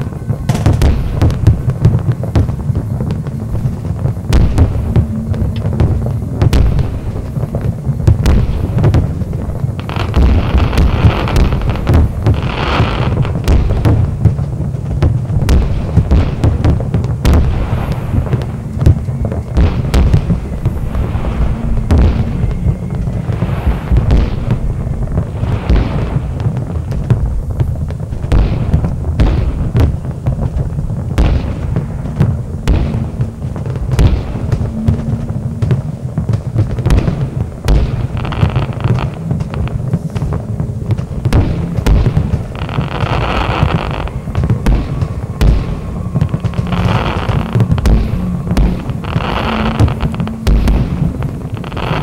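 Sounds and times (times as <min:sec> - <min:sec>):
firework bangs and crackles: 0:00.0 - 0:52.0
hissing crackle: 0:00.0 - 0:52.0
low rumble: 0:00.0 - 0:52.0.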